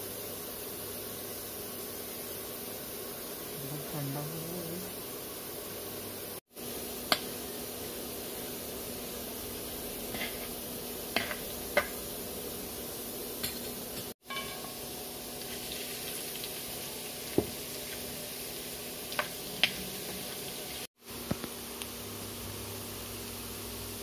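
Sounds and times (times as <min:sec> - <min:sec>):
oil sizzling with spices: 0:00.0 - 0:24.0
steel spatula scraping a pan: 0:10.0 - 0:10.6.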